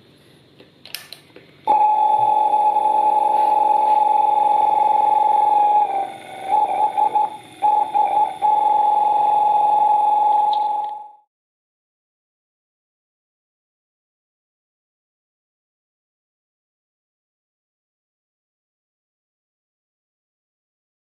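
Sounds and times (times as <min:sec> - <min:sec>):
pump high whine: 0:01.7 - 0:11.3.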